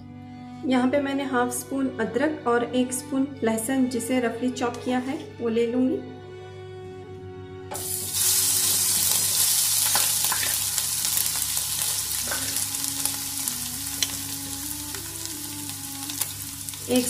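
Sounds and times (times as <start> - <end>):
ginger and garlic sizzling in oil: 7.8 - 17.0.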